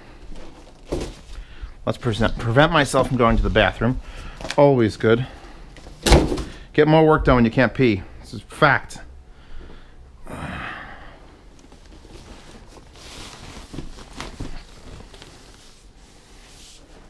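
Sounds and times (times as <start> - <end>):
plastic bag rustling: 0.0 - 4.5, 11.5 - 17.0
breathy exhale: 9.3 - 11.4.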